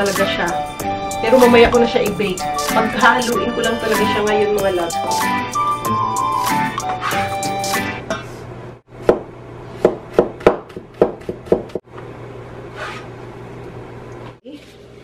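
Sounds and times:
cleaver chopping on cutting board: 9.0 - 11.8.

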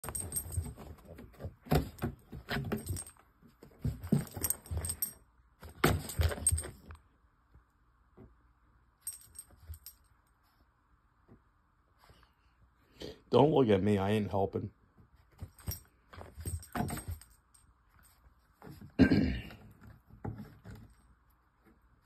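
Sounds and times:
metal collar tags jangling: 0.0 - 1.1, 1.7 - 3.2, 4.1 - 5.2, 5.8 - 7.0, 9.0 - 10.1, 15.5 - 18.2.

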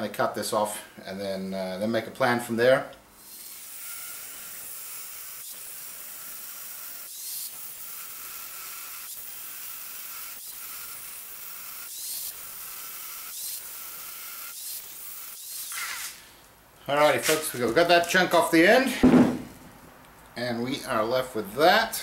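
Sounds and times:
angle grinder cutting steel: 3.2 - 16.2.

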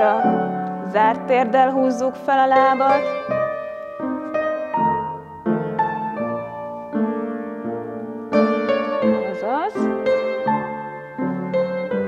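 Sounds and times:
gentle piano piece: 0.0 - 12.0.

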